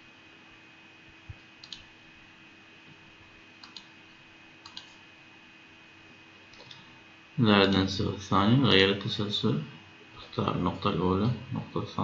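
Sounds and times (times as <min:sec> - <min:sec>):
low steady hum: 0:00.0 - 0:12.0
computer mouse clicks: 0:01.3 - 0:01.9, 0:03.6 - 0:04.0, 0:04.6 - 0:05.0, 0:06.5 - 0:06.8.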